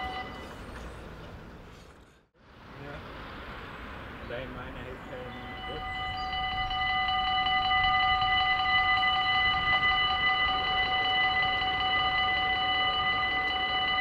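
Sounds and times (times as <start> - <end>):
level crossing bell ringing: 0.0 - 0.7, 5.3 - 14.0.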